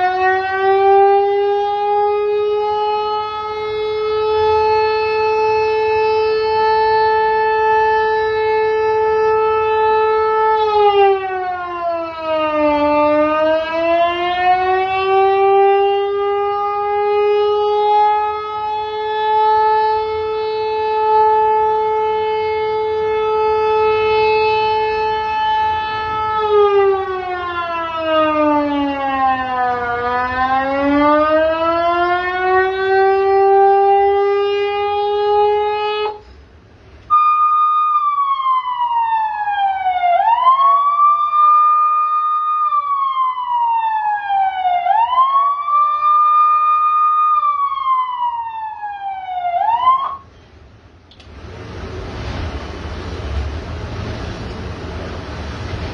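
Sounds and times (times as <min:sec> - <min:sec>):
electronic siren wailing: 0:00.0 - 0:36.2, 0:37.1 - 0:50.3.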